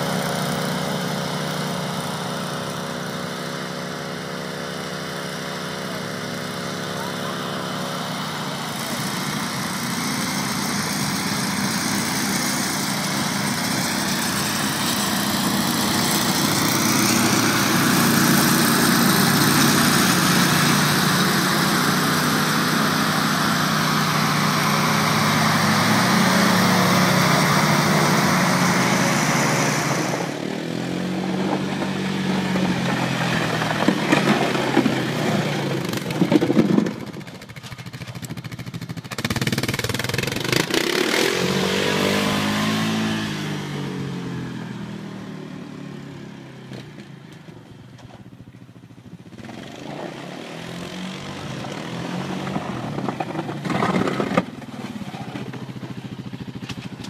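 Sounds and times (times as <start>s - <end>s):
rush of blown snow: 0.0s - 37.4s, 39.2s - 44.3s
atv engine hum: 0.0s - 57.0s
scraping clatter: 31.4s - 38.4s, 52.4s - 57.0s.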